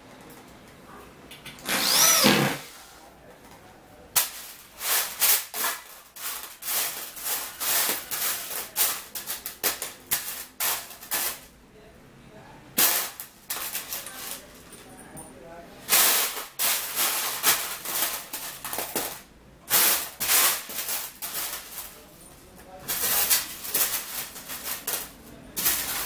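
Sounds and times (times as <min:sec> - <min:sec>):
electric drill whine: 0:01.6 - 0:02.7.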